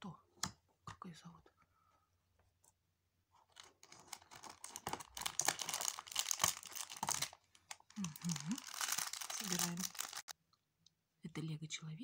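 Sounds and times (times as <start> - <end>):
plastic bag crinkling: 3.5 - 10.3.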